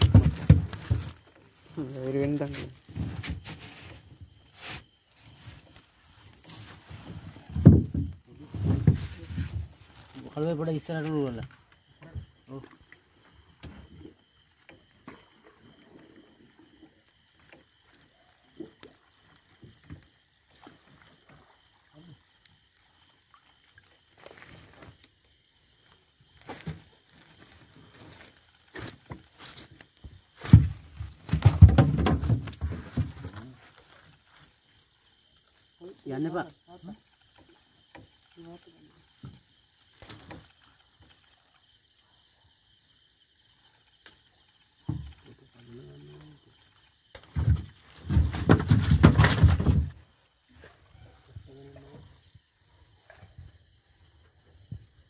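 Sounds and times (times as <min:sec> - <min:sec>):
wet fishing net rustling: 0:08.5 - 0:10.4, 0:23.9 - 0:25.0.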